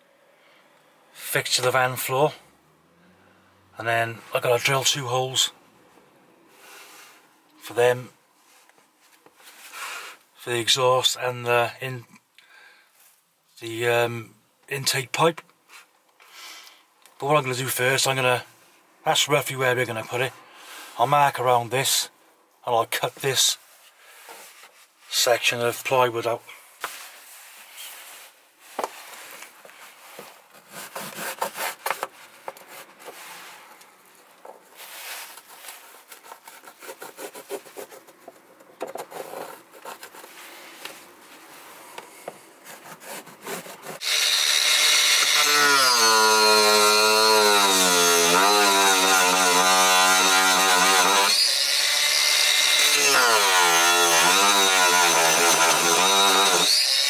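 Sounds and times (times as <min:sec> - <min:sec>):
pencil scratching on plywood: 0:30.6 - 0:32.1, 0:35.6 - 0:40.4, 0:42.6 - 0:44.2
circular saw cutting plywood: 0:42.7 - 0:57.0.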